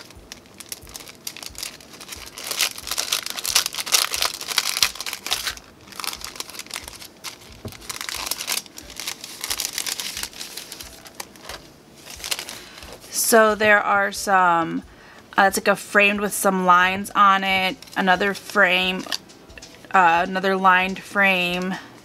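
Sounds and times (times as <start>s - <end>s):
cellophane packet crinkling: 0.0s - 13.2s, 17.7s - 19.2s.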